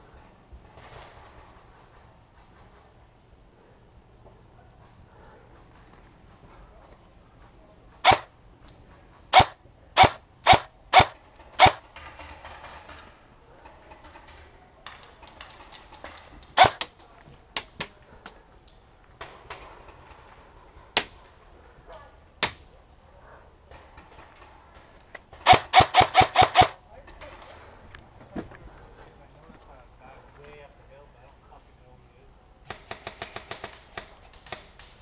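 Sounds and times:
airsoft rifle shots popping: 8.0s - 8.3s, 9.3s - 11.8s, 16.6s - 16.9s, 25.3s - 26.8s.

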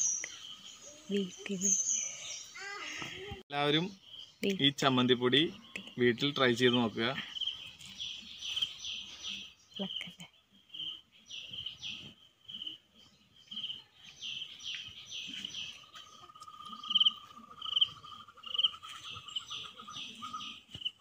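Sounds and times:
insects and birds chirping: 0.0s - 21.0s.

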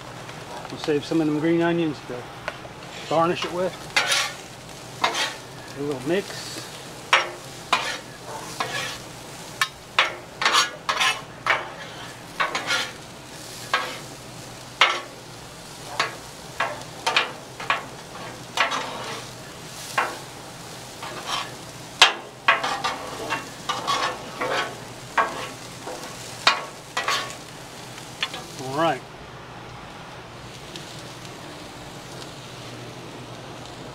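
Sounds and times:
corn sizzling: 0.0s - 33.9s
metal spatulas scraping griddle: 2.9s - 14.1s, 14.8s - 15.2s, 15.8s - 27.5s.

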